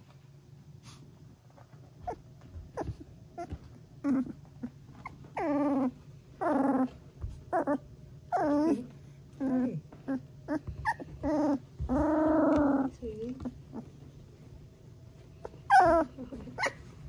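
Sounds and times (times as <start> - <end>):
puppy trilling calls: 10.1 - 12.9, 15.4 - 16.9.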